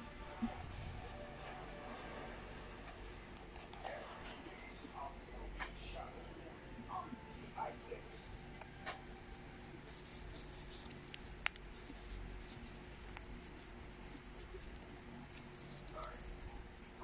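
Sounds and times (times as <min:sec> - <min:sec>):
cardboard scratching and scraping: 0:09.8 - 0:17.0.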